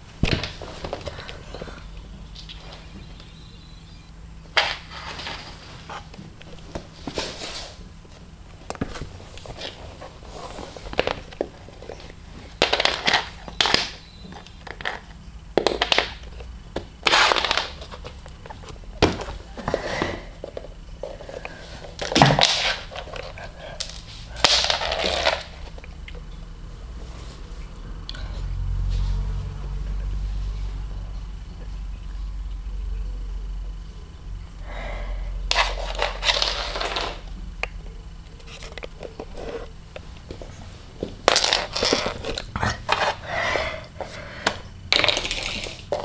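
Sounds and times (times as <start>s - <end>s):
sticky tape crinkling: 10.8s - 18.7s, 21.0s - 26.2s, 41.0s - 43.2s.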